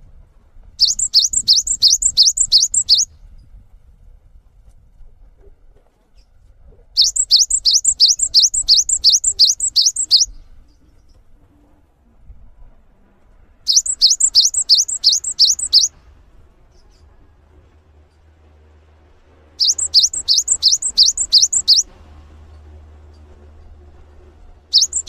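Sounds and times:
bird singing rising notes: 0.8 - 3.1, 7.0 - 10.4, 13.7 - 15.9, 19.6 - 21.9, 24.7 - 25.0.

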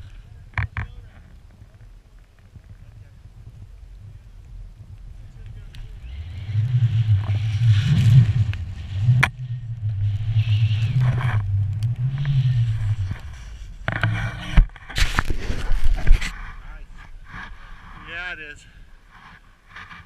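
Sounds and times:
wind rumble on microphone: 0.0 - 20.0
snowboard carving through snow: 5.6 - 20.0.

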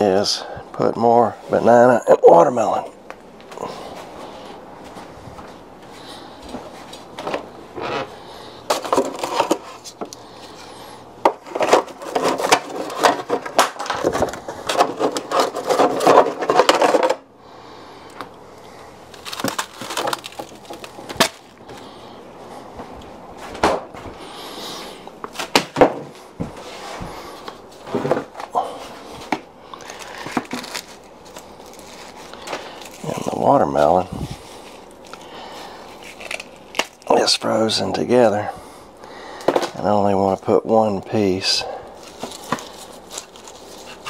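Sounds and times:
frozen fruit crinkling and crackling: 5.9 - 17.2, 18.1 - 23.0, 26.7 - 38.5, 41.2 - 44.0.

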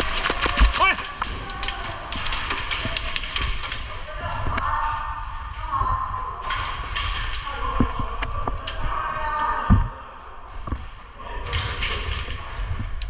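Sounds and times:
thumps and sharp knocks: 0.0 - 1.3.

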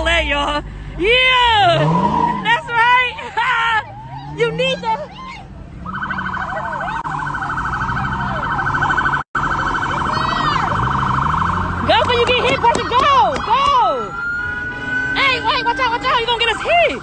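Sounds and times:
police siren warbling: 3.6 - 17.0.

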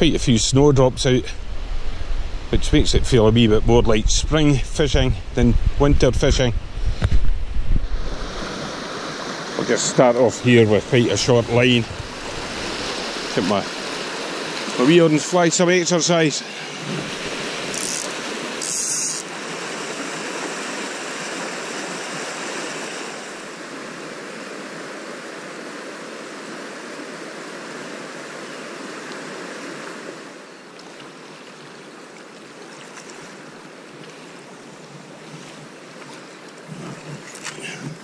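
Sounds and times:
river rushing over stones: 7.9 - 38.0.

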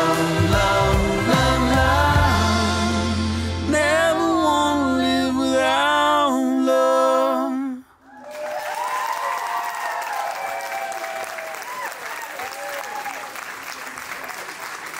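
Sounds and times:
crowd applause and cheering: 8.0 - 14.9.

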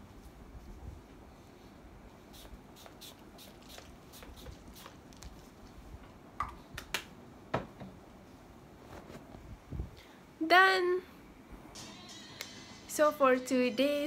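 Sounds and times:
perfume bottle spraying: 2.3 - 5.3.

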